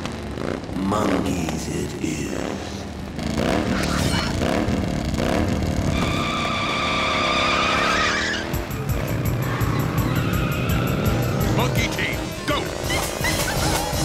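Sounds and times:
cartoon wheels skidding in dirt: 5.7 - 8.5
held squeal: 5.9 - 8.6, 9.4 - 11.4
action music: 7.8 - 14.0.

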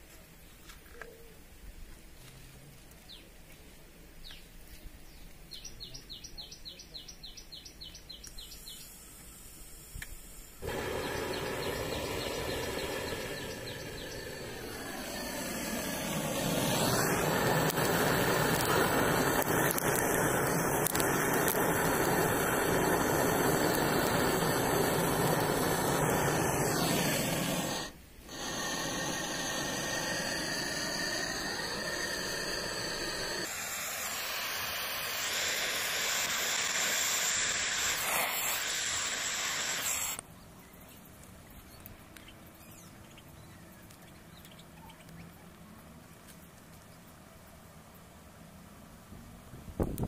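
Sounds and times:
gas torch hissing: 8.2 - 40.2
hot metal sizzling corn kernels: 8.3 - 40.2.

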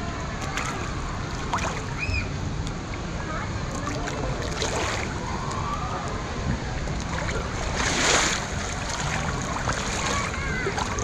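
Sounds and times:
water sloshing and splashing: 0.3 - 2.7, 3.6 - 11.0
loud splash: 0.5 - 2.2, 3.7 - 5.3, 7.0 - 11.0.

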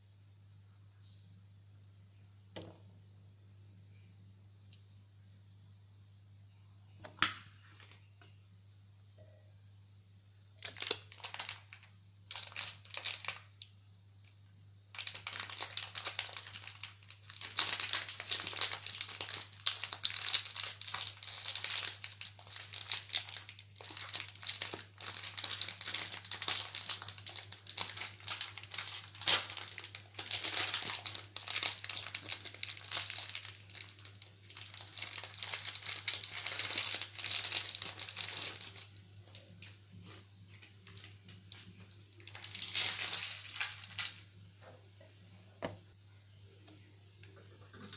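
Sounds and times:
plastic wrapper crinkling: 10.6 - 44.3.

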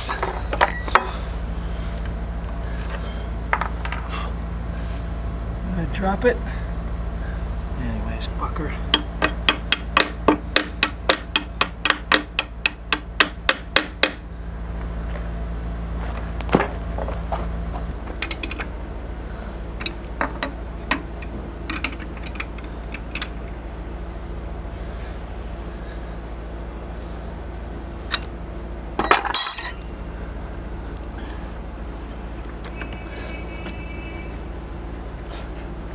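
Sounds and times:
wrench clinking on metal: 29.0 - 29.9.

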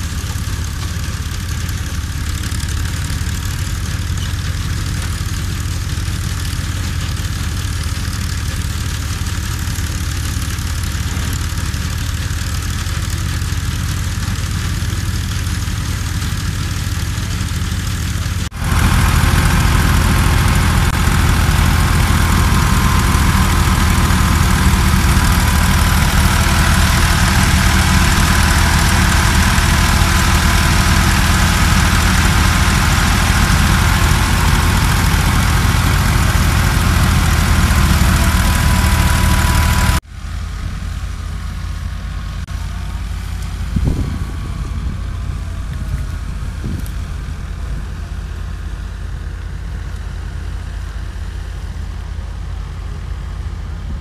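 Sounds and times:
thresher hum: 0.0 - 53.2
tractor engine drone: 0.0 - 54.0.

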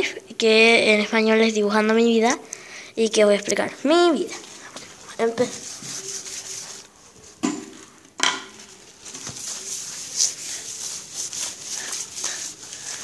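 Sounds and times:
hand scraping on paper: 4.3 - 7.3, 9.0 - 13.0.

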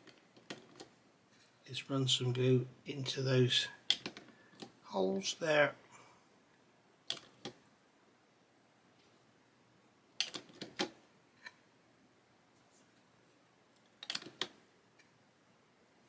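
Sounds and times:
small plastic parts clicking: 3.9 - 4.8, 7.1 - 7.6, 10.2 - 11.6, 13.8 - 15.1.

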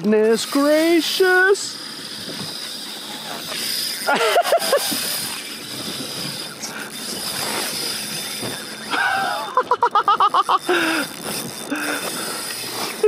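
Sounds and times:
fishing reel drag whining: 0.0 - 13.0
water noise: 0.0 - 13.0
wind: 0.0 - 13.0
person grunting laugh: 4.1 - 5.0, 8.9 - 11.1.

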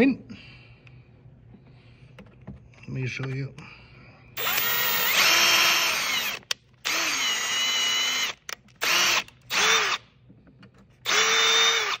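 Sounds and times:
cordless drill whine: 4.4 - 10.0, 11.0 - 12.0.

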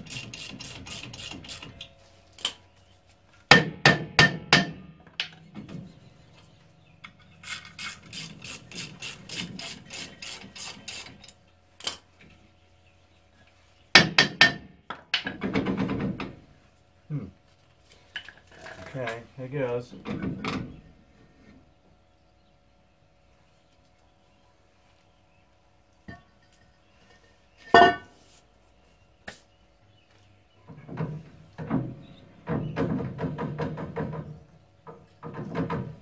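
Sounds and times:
sharp metal knocks: 3.5 - 5.4, 13.9 - 16.3.

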